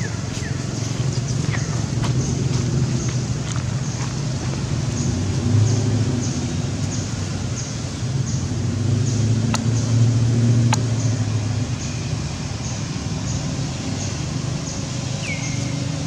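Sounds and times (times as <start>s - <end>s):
low motor rumble: 0.0s - 16.0s
sharp clicks: 9.5s - 9.8s, 10.6s - 11.1s.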